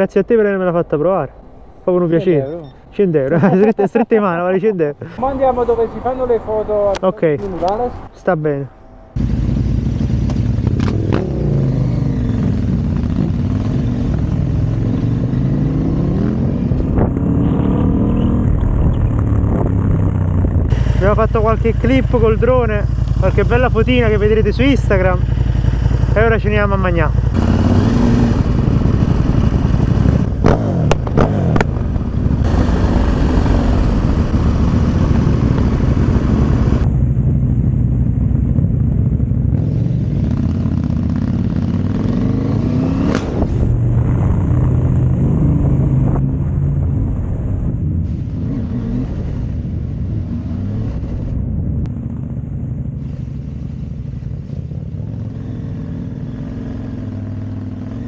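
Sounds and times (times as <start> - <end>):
motorcycle engine revving: 9.1 - 58.0.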